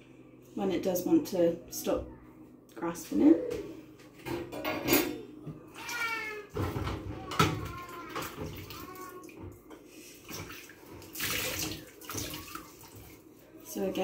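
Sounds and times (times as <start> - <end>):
water splashing in sink: 7.2 - 13.2.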